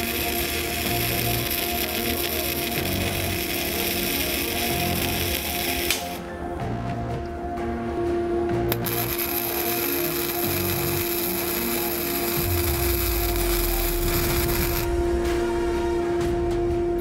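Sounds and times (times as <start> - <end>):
welding torch arc: 0.0 - 6.2, 8.7 - 14.9.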